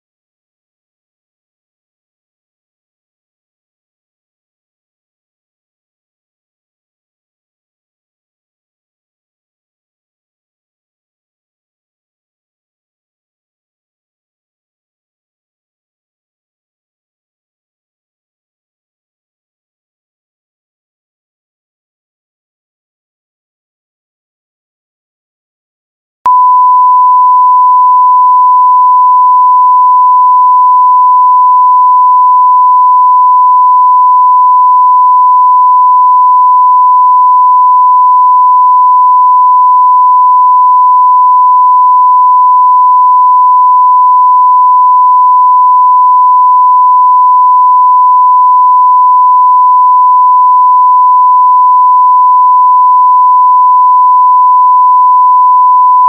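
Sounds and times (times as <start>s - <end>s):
steady electronic beep tone: 26.3s - 32.6s.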